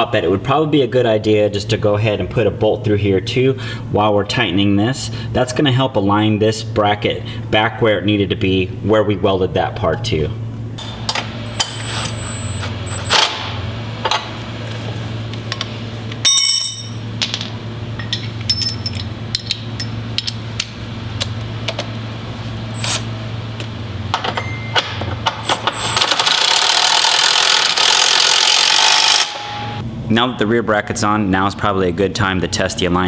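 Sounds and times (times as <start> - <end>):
steady low hum: 0.0 - 26.0, 28.6 - 33.0
power tool running: 25.4 - 29.8.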